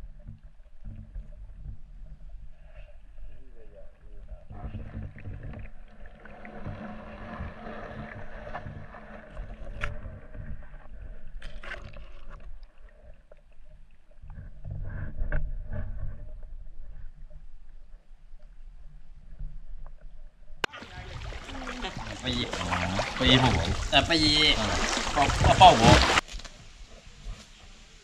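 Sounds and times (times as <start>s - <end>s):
underwater clicks and knocks: 0.0s - 2.5s, 4.2s - 13.5s
low underwater hum: 0.0s - 28.0s.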